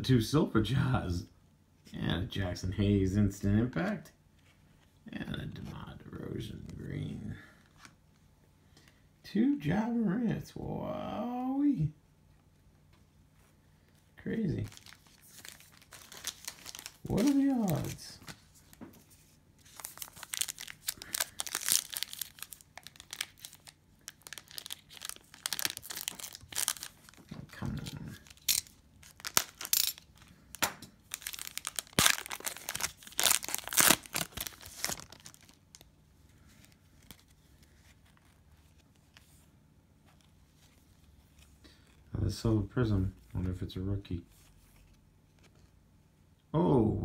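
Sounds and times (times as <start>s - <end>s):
cellophane wrapper ripping: 14.6s - 18.2s, 19.6s - 35.9s.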